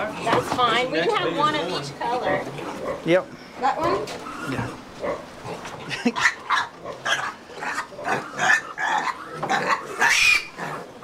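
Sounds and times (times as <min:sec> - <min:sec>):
piglets squealing: 0:03.9 - 0:05.2, 0:06.1 - 0:11.0.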